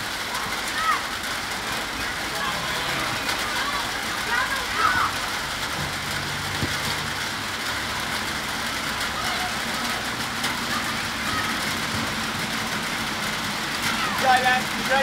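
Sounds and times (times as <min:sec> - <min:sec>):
low engine hum: 0:05.2 - 0:15.0.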